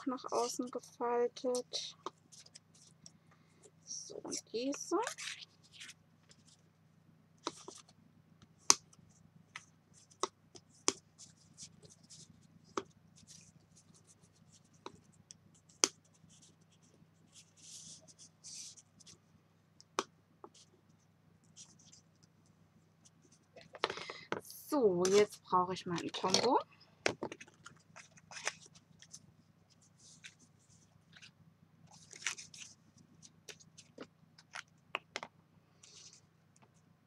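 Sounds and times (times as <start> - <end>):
card rustling and scraping: 4.2 - 6.6, 25.9 - 34.7, 35.8 - 36.3.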